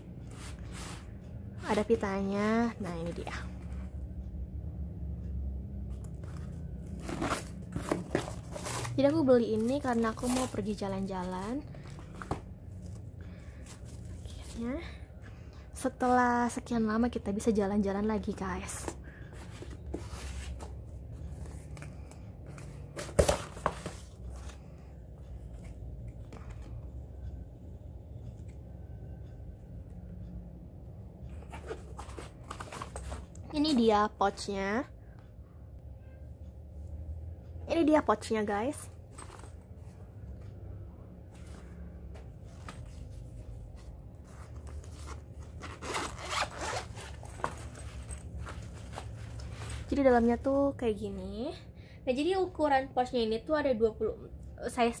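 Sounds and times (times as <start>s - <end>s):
cardboard rustling and scraping: 6.1s - 13.0s, 18.8s - 21.8s, 22.6s - 24.6s, 31.4s - 33.4s
fabric rustling: 41.3s - 50.2s
zipper being unzipped: 44.9s - 47.9s.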